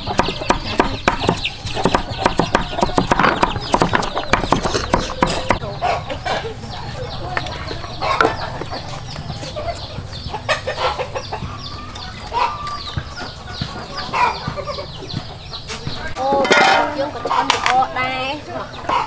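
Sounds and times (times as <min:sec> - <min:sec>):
firewood knocking: 0:00.0 - 0:05.6
chickens clucking: 0:00.0 - 0:19.0.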